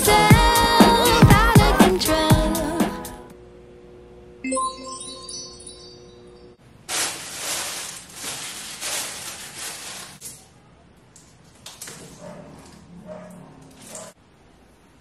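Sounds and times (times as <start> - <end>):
plastic packaging crinkling: 6.7 - 10.4.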